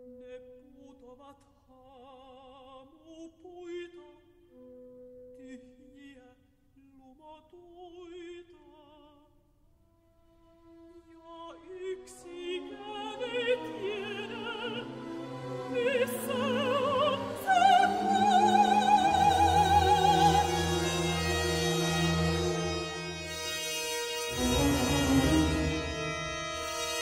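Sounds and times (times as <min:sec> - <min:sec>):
soft orchestral accompaniment: 0:10.2 - 0:27.0
woman singing with vibrato: 0:12.1 - 0:21.3.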